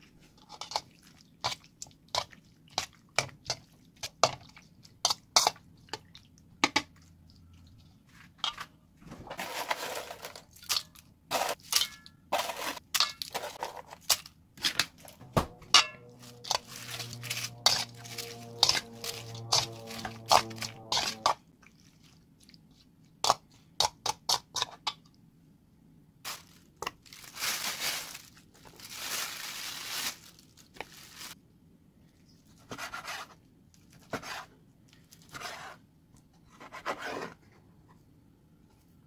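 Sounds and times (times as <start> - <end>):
background music: 15.2 - 21.3.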